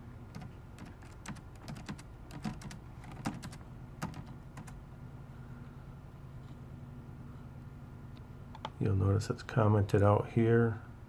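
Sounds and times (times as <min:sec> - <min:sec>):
faint hum: 0:00.0 - 0:11.0
computer keyboard typing: 0:00.3 - 0:04.8.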